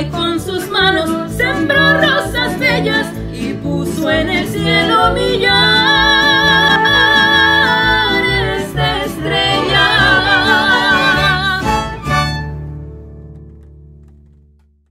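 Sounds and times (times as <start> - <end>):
mariachi band playing and singing: 0.0 - 12.5
low bass notes ringing: 1.6 - 3.0.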